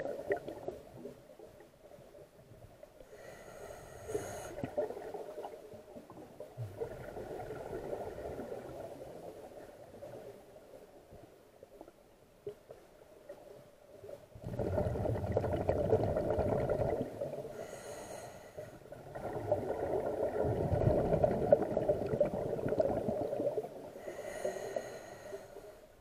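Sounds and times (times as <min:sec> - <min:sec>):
exhaled bubbles gurgling: 0:00.0 - 0:01.1, 0:04.6 - 0:10.3, 0:14.3 - 0:17.7, 0:18.8 - 0:24.4
regulator inhalation hiss: 0:03.1 - 0:04.6.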